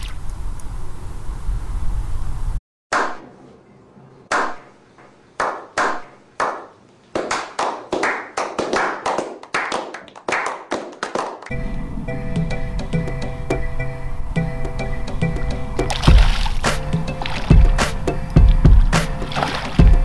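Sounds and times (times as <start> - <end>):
low steady rumble: 0.1 - 2.6, 11.5 - 16.4
group slow clapping: 5.4 - 11.5.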